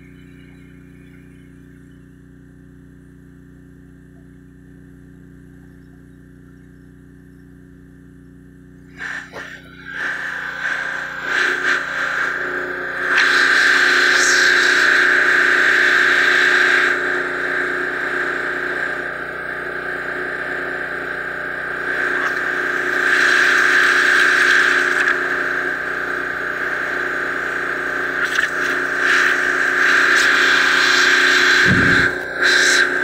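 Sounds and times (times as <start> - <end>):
pressure washer blasting mud: 13.0 - 14.8, 28.2 - 33.0.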